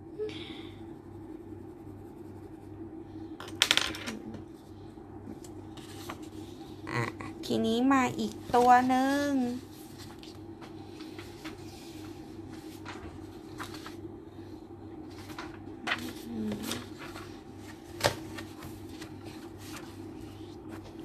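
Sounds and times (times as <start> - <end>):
paper rustling on a desk: 5.4 - 6.6, 8.2 - 14.1, 15.1 - 21.0.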